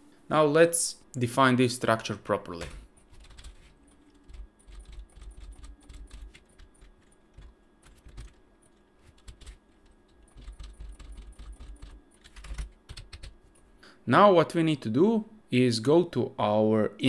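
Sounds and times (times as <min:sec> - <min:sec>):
computer keyboard typing: 0:02.6 - 0:13.4.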